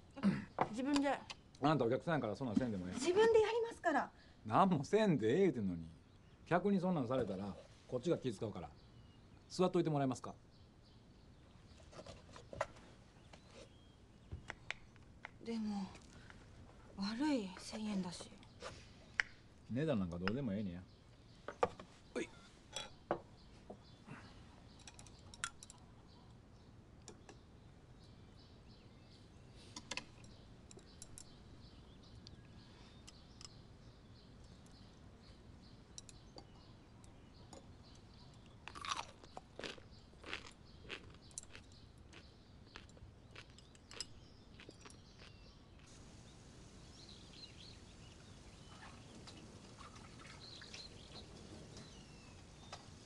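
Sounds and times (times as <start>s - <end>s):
chewing: 38.4s - 46.0s.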